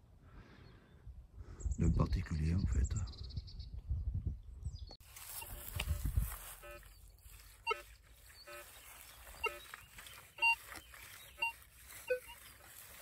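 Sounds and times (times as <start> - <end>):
metal detector beeps: 5.2 - 13.0.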